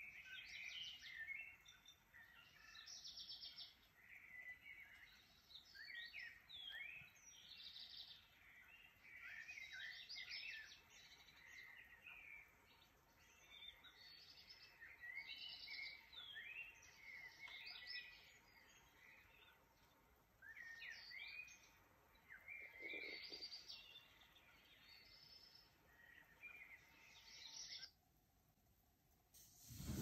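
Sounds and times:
birds chirping: 0:00.0 - 0:27.9
steady hiss: 0:29.3 - 0:30.0.

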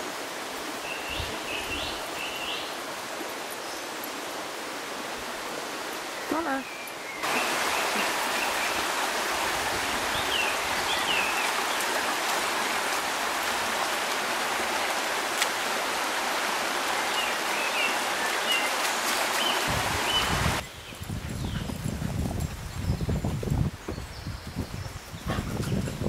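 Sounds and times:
stream rushing over stones: 0:00.0 - 0:20.6.

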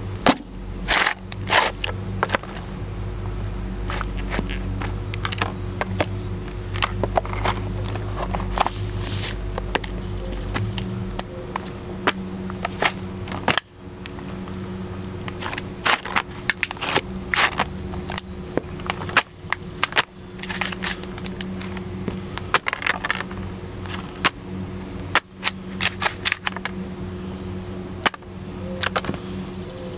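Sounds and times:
steady low hum: 0:00.0 - 0:29.9
boots crushing cardboard cans: 0:00.2 - 0:02.6, 0:03.9 - 0:14.4, 0:15.2 - 0:21.8, 0:22.4 - 0:24.4.

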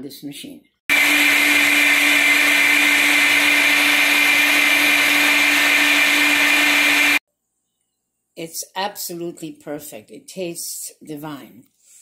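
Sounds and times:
blender motor whining: 0:00.9 - 0:07.2.

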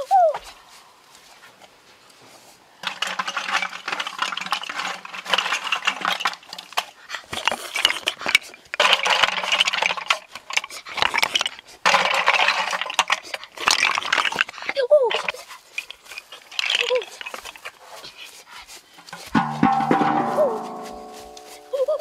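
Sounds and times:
snail shells clattering: 0:02.8 - 0:18.2.

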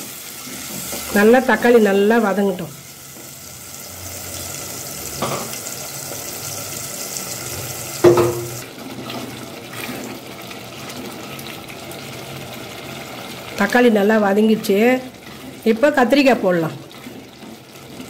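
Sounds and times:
food sizzling in oil: 0:00.0 - 0:18.0
wooden spatula knocks: 0:08.0 - 0:08.6.

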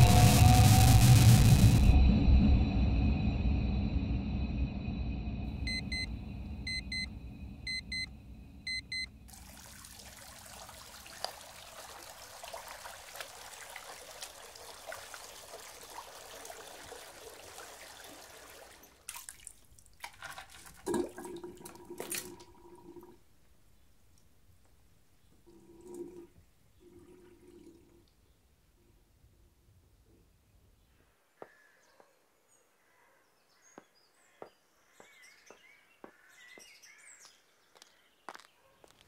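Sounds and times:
music: 0:00.0 - 0:05.3
electronic double beeps: 0:00.0 - 0:09.2
tap water running into basin: 0:09.3 - 0:23.2, 0:25.5 - 0:28.0.

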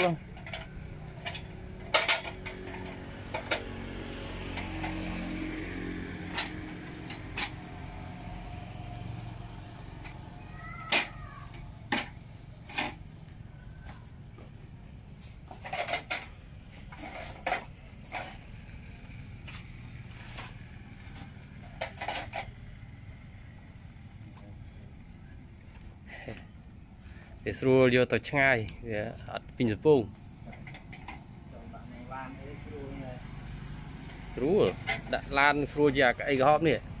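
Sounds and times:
folding chair clanking: 0:00.0 - 0:03.8.

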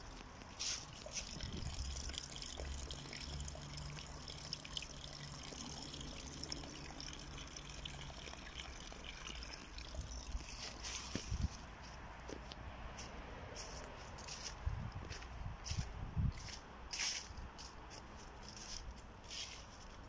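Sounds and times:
liquid trickling and splashing: 0:00.0 - 0:11.7.

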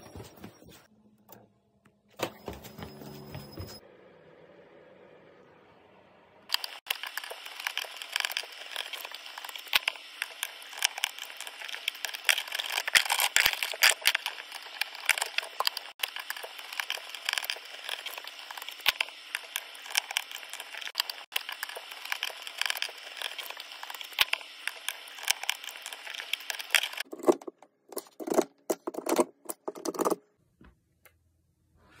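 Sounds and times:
clicking and crackling of wiring work: 0:06.5 - 0:30.2.

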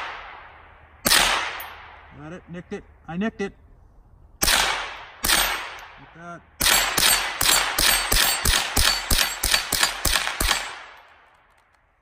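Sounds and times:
rifle shots in rapid succession: 0:01.0 - 0:01.9, 0:04.4 - 0:05.9, 0:06.6 - 0:11.2.

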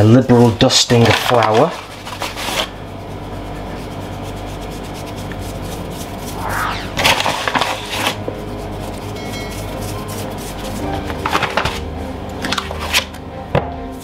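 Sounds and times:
hand brushing flour on worktop: 0:03.4 - 0:11.0.

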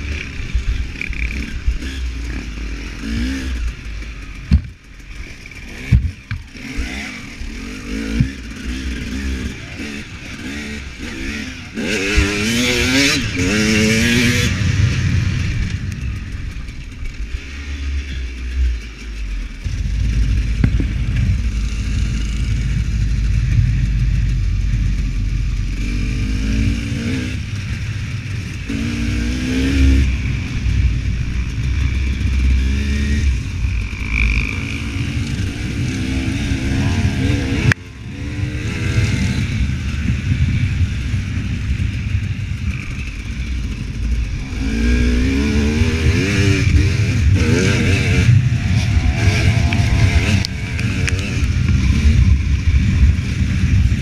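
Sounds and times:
motorcycle engine revving: 0:00.0 - 0:54.0
low rumble: 0:09.9 - 0:54.0.

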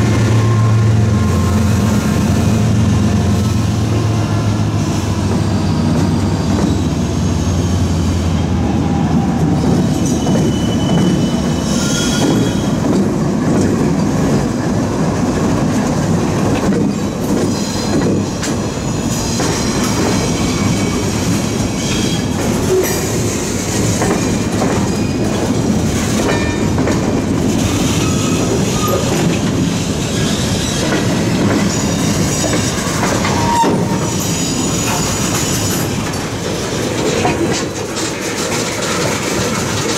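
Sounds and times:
diesel locomotive engine: 0:00.0 - 0:39.9
train wheels clattering on rails: 0:00.0 - 0:39.9
high wheel squeals: 0:04.0 - 0:08.3, 0:09.6 - 0:12.8, 0:18.7 - 0:23.8, 0:27.8 - 0:29.3, 0:30.1 - 0:35.9.

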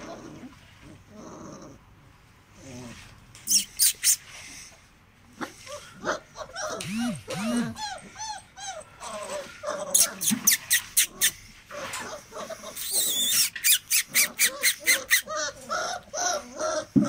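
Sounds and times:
puppies yelping: 0:03.4 - 0:04.2, 0:05.4 - 0:17.0
puppies whining and whimpering: 0:03.4 - 0:04.3, 0:05.5 - 0:17.0.

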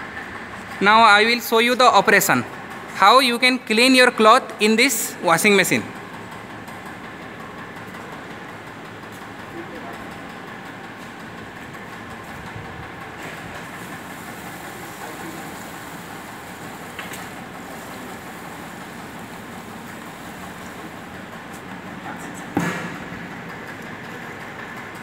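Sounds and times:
water pouring into metal drum: 0:13.7 - 0:21.0
sharp knock: 0:22.5 - 0:23.1.

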